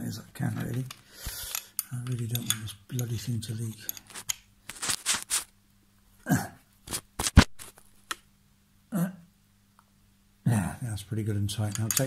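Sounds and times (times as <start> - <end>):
spanner clicks: 11.7 - 12.0.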